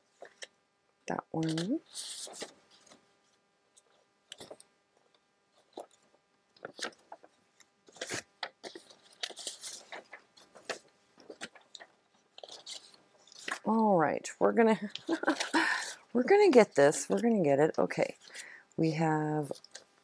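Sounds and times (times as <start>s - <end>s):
paper rustling and crinkling: 1.4s - 3.0s, 3.8s - 4.7s, 5.5s - 13.7s, 14.8s - 17.4s, 19.4s - 20.0s.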